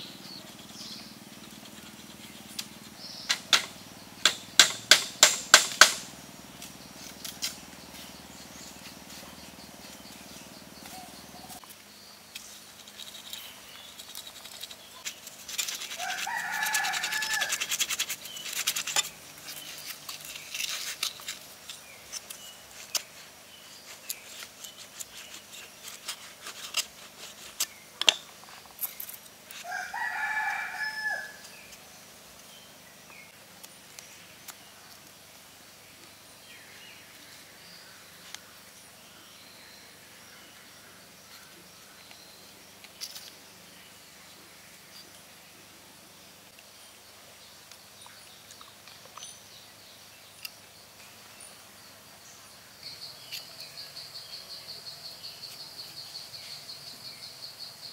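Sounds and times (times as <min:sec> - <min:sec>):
scraping and tapping bamboo: 0:00.4 - 0:08.2, 0:10.8 - 0:31.8, 0:42.8 - 0:43.4
sharp knocks: 0:03.3 - 0:06.1
rooster crowing: 0:16.0 - 0:17.7, 0:29.6 - 0:31.5.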